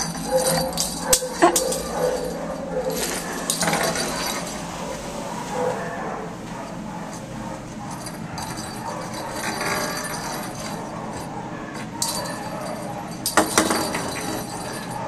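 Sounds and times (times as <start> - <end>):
cat ball bell jingling: 0.0 - 4.7, 7.8 - 15.0.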